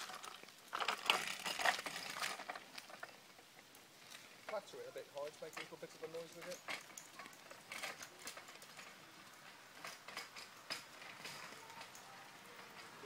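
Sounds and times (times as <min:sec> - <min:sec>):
scooter wheels clicking and rattling: 0:00.0 - 0:13.0.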